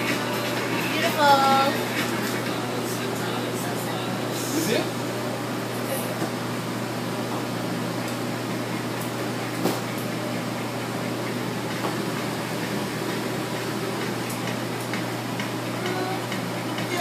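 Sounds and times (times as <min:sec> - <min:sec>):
ventilation fans humming: 0:00.0 - 0:17.0.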